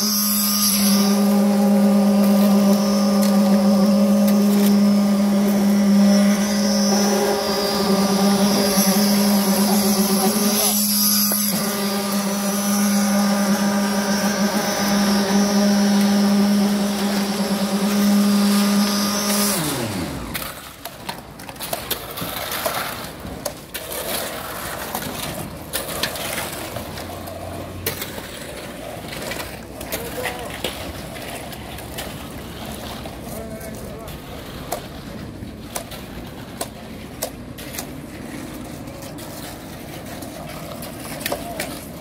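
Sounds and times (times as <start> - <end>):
machine motor humming: 0.0 - 20.4.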